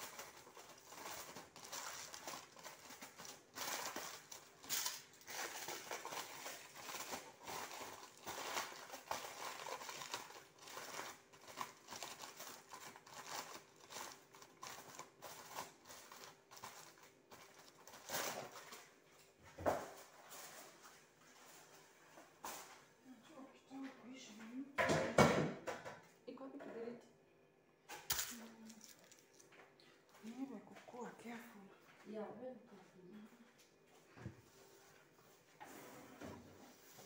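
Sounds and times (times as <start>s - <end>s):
aluminium foil crinkling: 0.0s - 19.3s, 28.0s - 30.6s.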